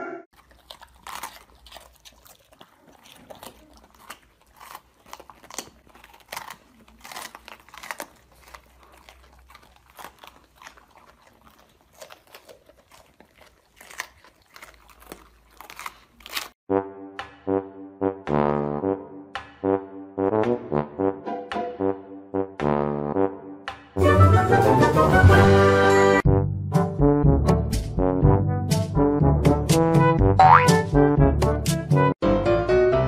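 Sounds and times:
dogs crunching peppers: 0.3s - 16.6s.

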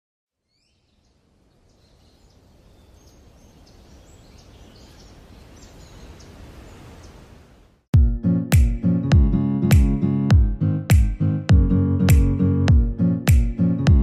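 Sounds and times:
faint bird chirps: 0.3s - 7.4s.

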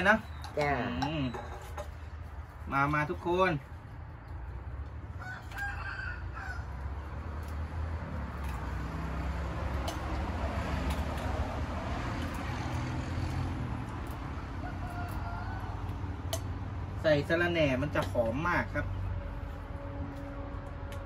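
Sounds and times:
spoons clinking against bowls: 0.0s - 2.0s, 16.3s - 16.6s.

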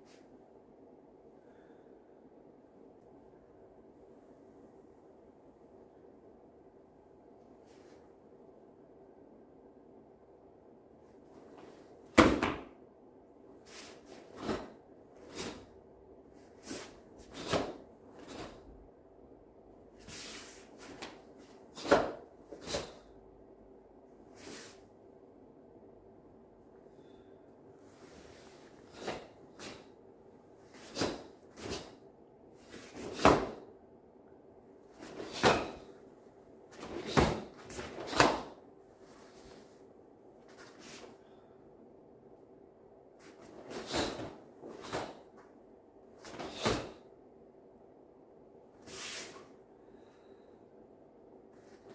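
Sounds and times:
faint steady hum: 0.0s - 51.9s
uniform snapping and swishing: 13.6s - 15.7s, 16.4s - 18.6s, 30.7s - 32.0s, 34.9s - 35.9s, 36.7s - 38.6s, 43.2s - 45.4s, 46.2s - 47.0s.

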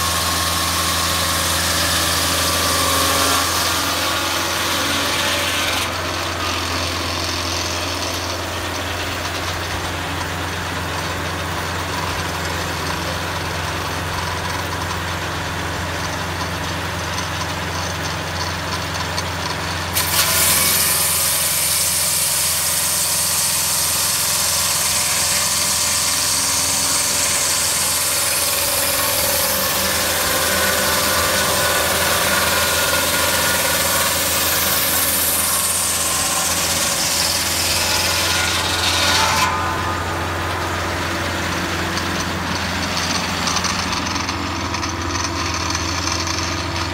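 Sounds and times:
circular saw blade cutting timber: 0.0s - 46.9s
engine hum: 39.6s - 46.9s.

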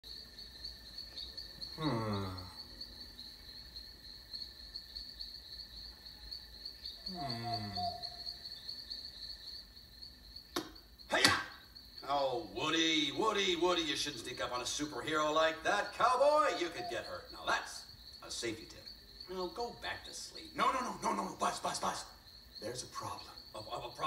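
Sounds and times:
crickets chirping: 0.0s - 24.0s
sharp click: 10.5s - 11.5s.

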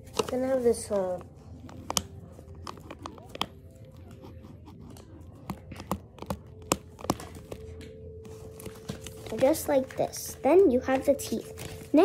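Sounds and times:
pen tapping and scratching on paper: 1.6s - 9.6s.

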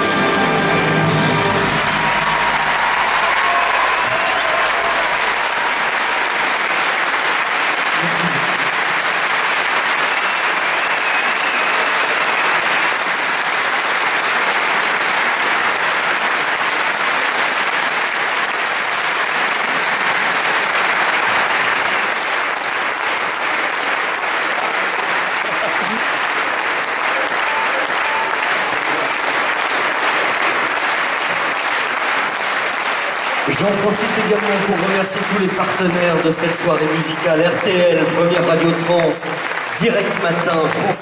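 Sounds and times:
audience applauding: 0.0s - 41.0s.

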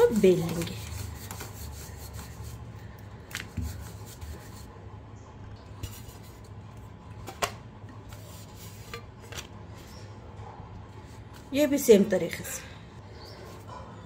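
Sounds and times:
rolling pin rolling dough: 0.0s - 2.7s.

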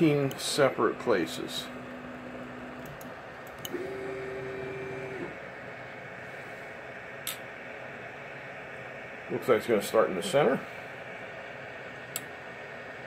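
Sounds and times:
stepper motor hum: 0.0s - 6.2s.

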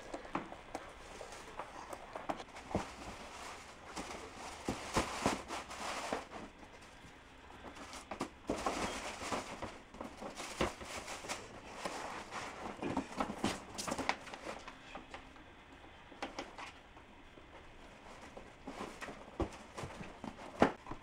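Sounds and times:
tissue paper rustling: 1.0s - 6.6s
shoes knocking in cardboard box: 4.0s - 5.6s.

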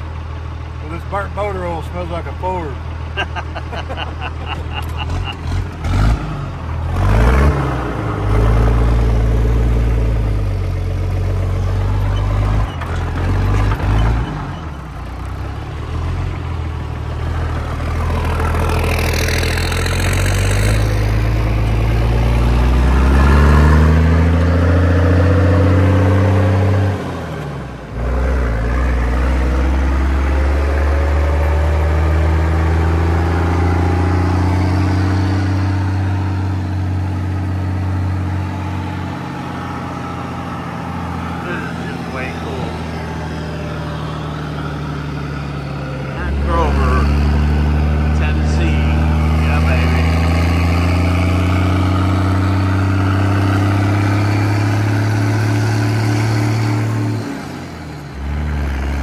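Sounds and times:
diesel truck engine accelerating: 0.0s - 59.0s
wind and road rumble: 0.0s - 59.0s.

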